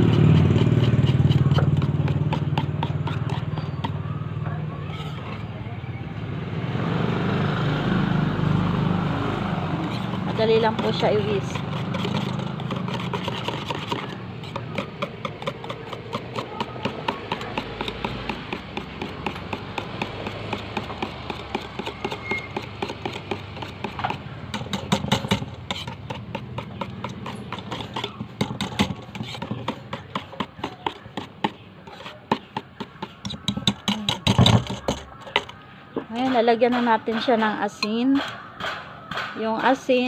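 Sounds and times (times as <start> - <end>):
whisk clicking in metal bowl: 9.8 - 35.5.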